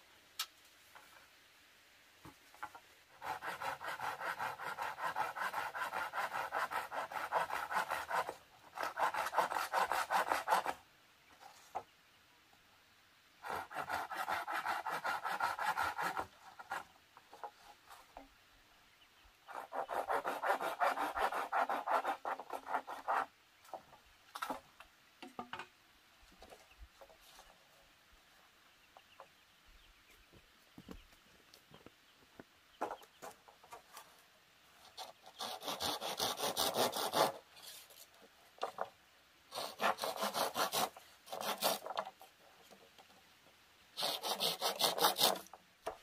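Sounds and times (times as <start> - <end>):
hand saw cutting bamboo: 3.1 - 10.8, 13.4 - 16.8, 19.5 - 23.3, 35.0 - 38.0, 39.5 - 42.2, 44.0 - 45.6.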